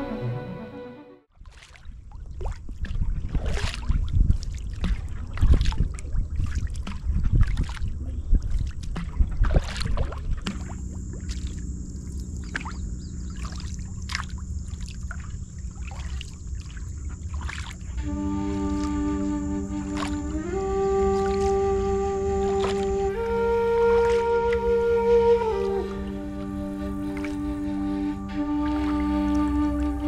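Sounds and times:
paddle splashing: 0:01.4 - 0:30.0
water dripping off paddle: 0:01.5 - 0:27.4.

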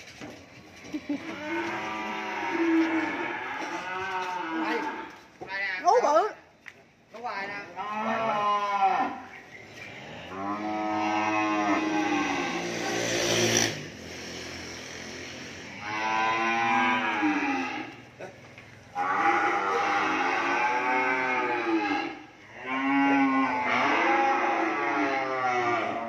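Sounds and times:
cattle mooing: 0:01.0 - 0:05.2, 0:07.7 - 0:09.3, 0:09.9 - 0:13.8, 0:15.4 - 0:18.4, 0:19.0 - 0:26.0.

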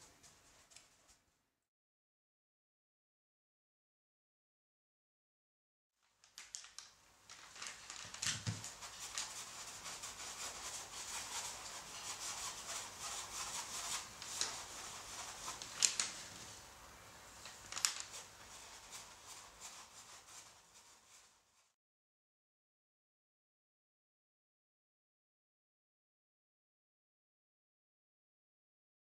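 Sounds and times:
paintbrush scrubbing on canvas: 0:08.1 - 0:16.7, 0:17.5 - 0:21.8.

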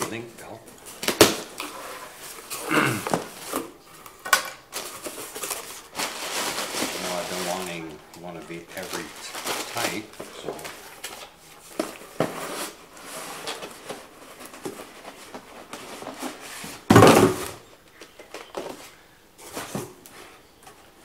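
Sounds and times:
packing material rustling: 0:04.7 - 0:16.9.

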